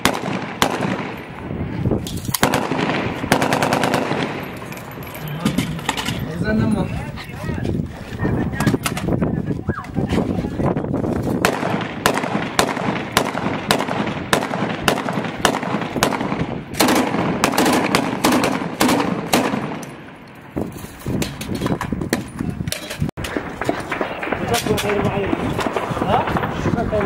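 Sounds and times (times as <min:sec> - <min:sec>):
rifle gunfire: 0:00.0 - 0:01.4, 0:02.3 - 0:04.7, 0:11.4 - 0:20.2, 0:23.2 - 0:27.0
machine gun bursts: 0:03.3 - 0:04.4.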